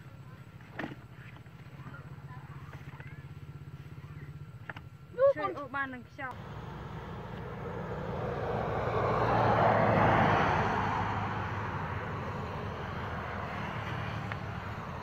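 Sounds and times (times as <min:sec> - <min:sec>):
steady low hum: 0:06.3 - 0:15.0
vehicle passing: 0:06.3 - 0:15.0.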